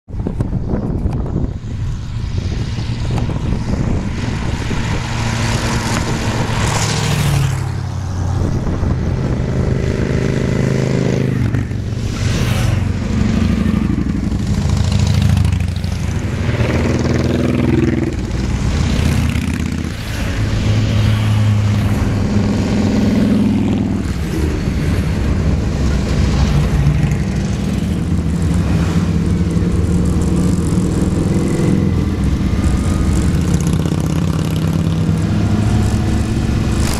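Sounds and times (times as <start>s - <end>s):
motorcycles riding past: 0.7s - 36.9s.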